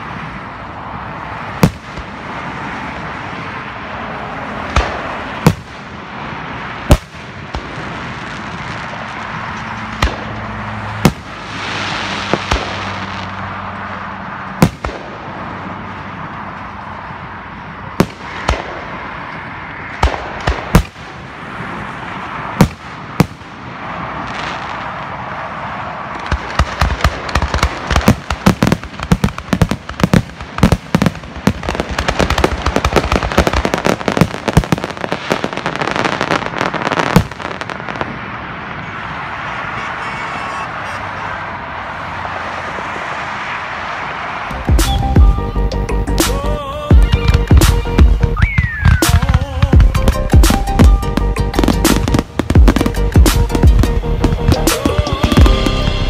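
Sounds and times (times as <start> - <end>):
firework crackles: 0.0 - 45.2, 46.2 - 56.0
background noise: 0.0 - 56.0
firework shells bursting: 47.1 - 55.8.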